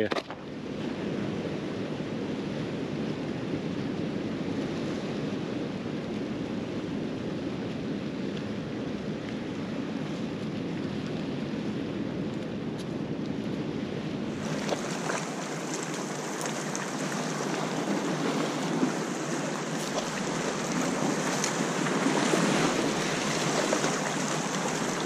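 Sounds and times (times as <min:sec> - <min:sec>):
wind buffeting microphone: 0:00.0 - 0:25.0
small waves lapping rocks: 0:14.3 - 0:25.0.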